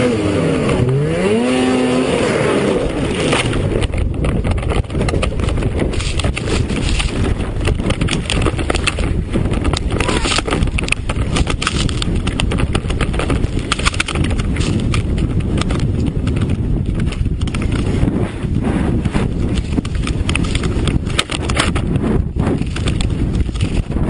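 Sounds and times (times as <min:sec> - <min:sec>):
snow rushing against snowmobile: 0:00.0 - 0:24.0
snowmobile clattering knocks: 0:02.9 - 0:18.0.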